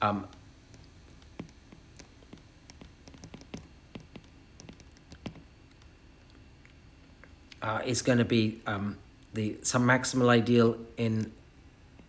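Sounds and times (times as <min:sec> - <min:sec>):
stylus tapping on glass screen: 0:00.7 - 0:05.5.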